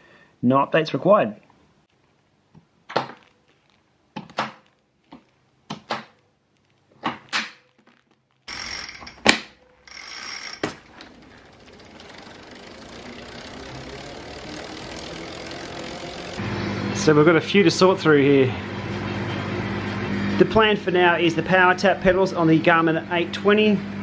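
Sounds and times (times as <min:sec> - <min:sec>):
cleats clicking into pedals: 0:02.9 - 0:16.4
steady whirr: 0:08.5 - 0:17.9.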